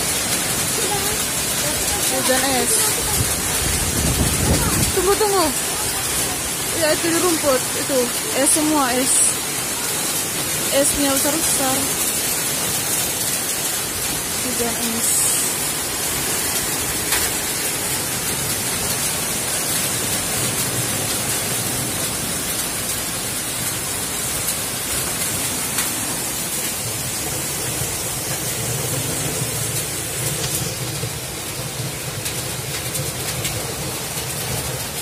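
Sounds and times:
hailstones striking: 0.0s - 35.0s
rain and hail pelting down: 0.0s - 35.0s.

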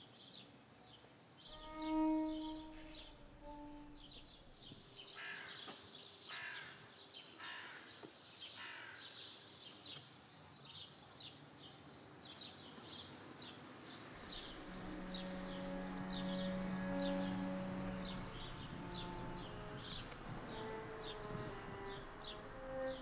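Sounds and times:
small birds chirping: 7.2s - 23.0s
bird harsh caws: 7.4s - 7.8s.

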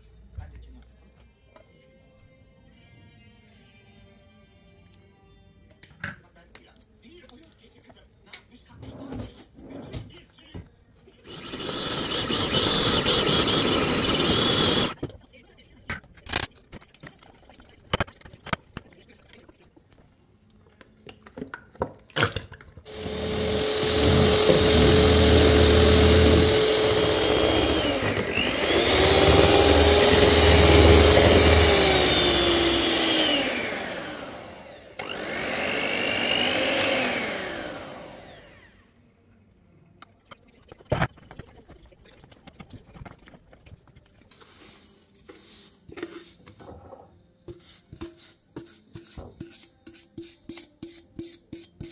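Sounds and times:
electric hand mixer motor: 11.3s - 15.0s, 22.9s - 38.8s
spatula scraping a bowl: 44.3s - 51.9s.

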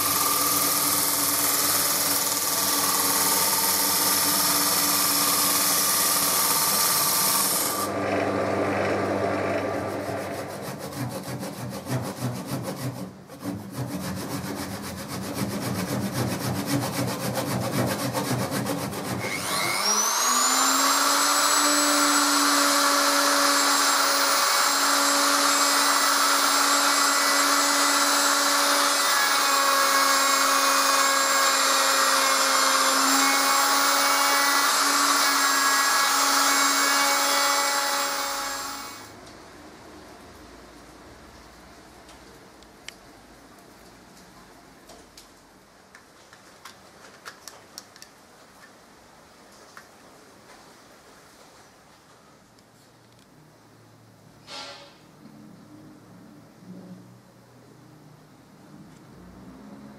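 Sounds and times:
power tool rubbing wood: 0.0s - 39.1s
electric motor whine: 2.6s - 10.8s, 19.2s - 39.1s.

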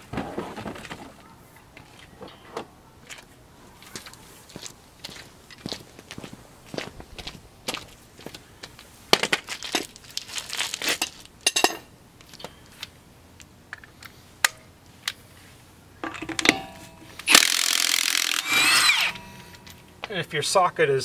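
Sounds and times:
tool clinks and knocks: 11.0s - 12.4s, 16.0s - 17.5s, 18.4s - 20.1s
impact wrench running: 16.0s - 20.0s.

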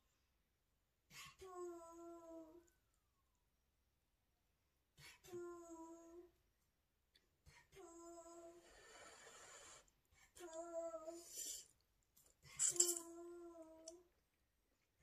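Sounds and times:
breathy hiss: 8.6s - 9.9s.

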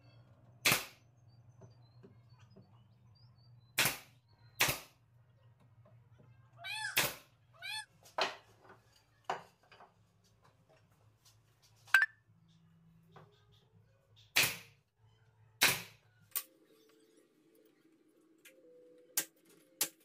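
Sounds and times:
nail gun shots: 0.6s - 1.0s, 3.8s - 4.9s, 14.3s - 14.8s, 15.6s - 16.0s.

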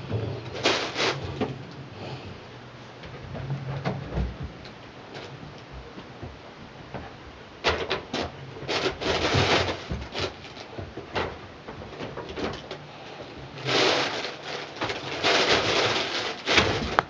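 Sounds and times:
scraping rustle: 0.0s - 2.4s, 7.0s - 17.0s.

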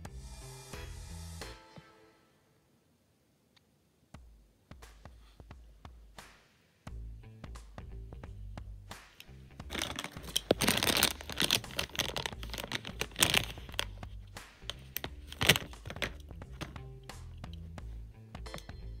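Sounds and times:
background music: 0.0s - 2.6s, 4.2s - 19.0s
plastic packaging crinkling: 9.6s - 16.8s.

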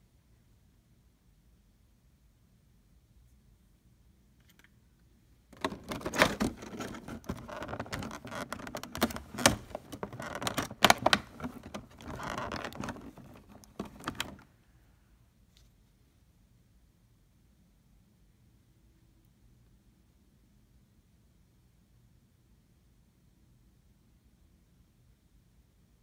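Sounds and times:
plastic packaging crinkling: 5.5s - 14.4s.

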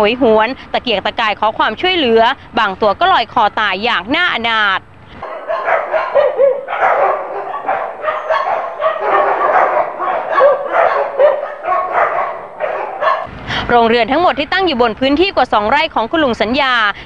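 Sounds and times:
many dogs barking and yelping: 5.2s - 13.3s.

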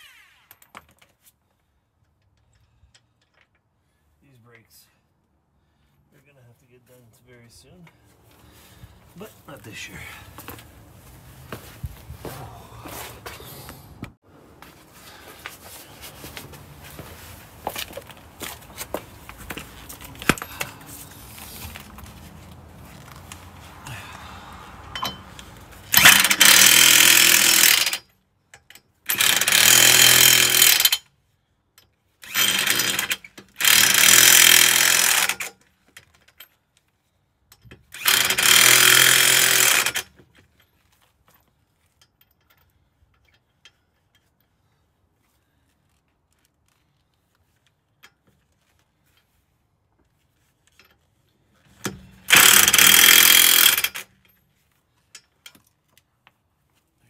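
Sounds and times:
impact wrench hammering: 25.9s - 28.0s, 29.1s - 31.0s, 32.3s - 35.5s, 38.0s - 40.1s, 51.8s - 54.2s.

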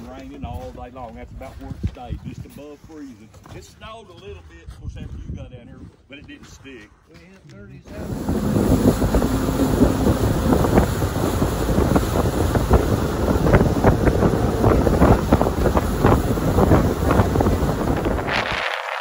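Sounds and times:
wind buffeting microphone: 4.7s - 6.1s, 7.9s - 19.0s
boat underway: 7.8s - 19.0s.

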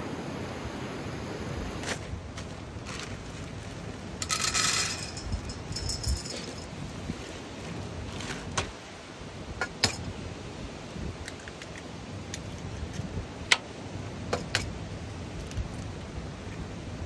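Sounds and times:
utensils clinking in metal bowl: 4.2s - 6.9s.

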